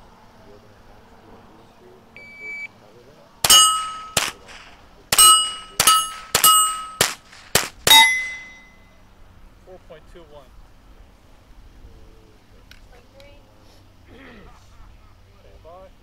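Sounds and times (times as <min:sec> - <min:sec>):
rifle shots: 0:03.4 - 0:08.6
steel targets ringing: 0:03.4 - 0:09.0
shot timer beep: 0:05.2 - 0:07.1, 0:07.9 - 0:08.8.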